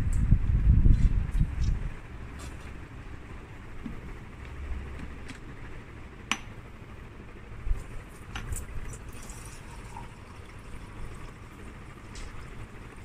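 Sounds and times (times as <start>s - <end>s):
tap water running into beaker: 8.3s - 11.4s.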